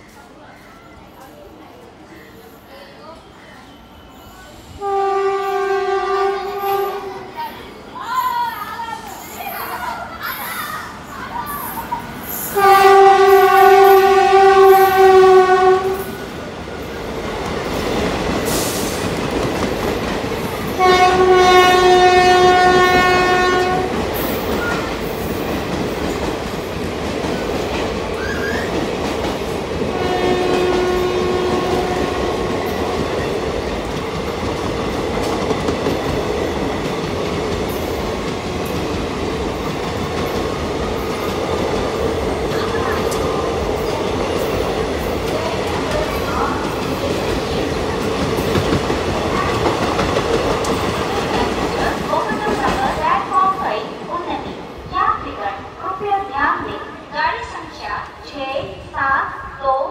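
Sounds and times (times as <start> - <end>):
locomotive horn blasts: 4.8 - 7.2, 12.6 - 16.1, 20.8 - 24.0, 29.9 - 32.4
train coaches clattering over rails: 8.5 - 56.3.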